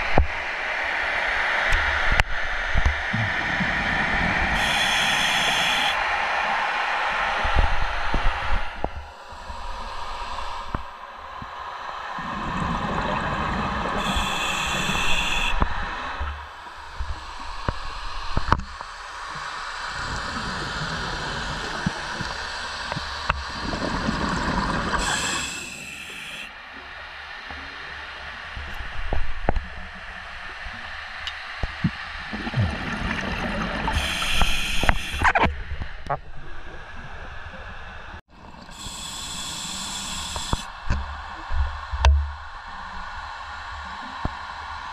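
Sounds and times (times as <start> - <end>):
high whistling hiss: 1.4 - 10.7, 13.9 - 22.7, 25.0 - 26.8, 33.9 - 35.4, 38.7 - 42.1
diver breathing through regulator: 4.5 - 6.0, 12.2 - 16.3, 24.9 - 26.5, 33.8 - 35.4, 38.7 - 40.7.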